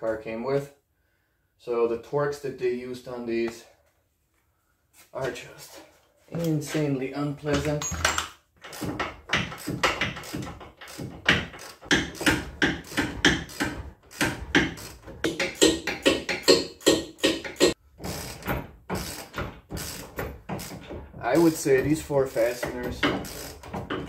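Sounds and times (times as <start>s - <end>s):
hand ratchet clicking: 8.6s - 24.0s.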